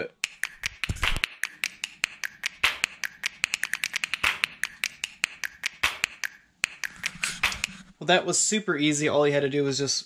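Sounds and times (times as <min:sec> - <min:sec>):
fast sharp clicks: 0:00.2 - 0:07.9.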